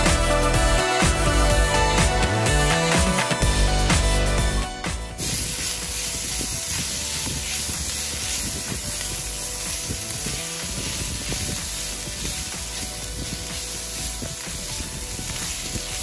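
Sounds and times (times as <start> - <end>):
food sizzling in skillet: 4.8 - 16.0
spoon scraping skillet: 5.2 - 16.0.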